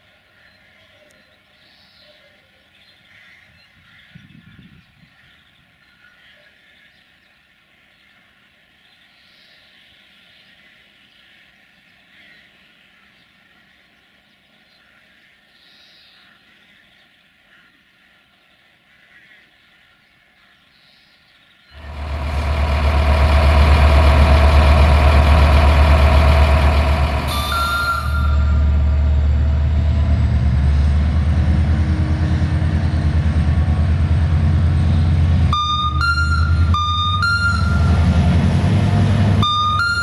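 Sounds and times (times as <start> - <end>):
locomotive horn blasts: 21.8 - 30.0, 31.7 - 40.0
locomotive engine running: 21.8 - 40.0.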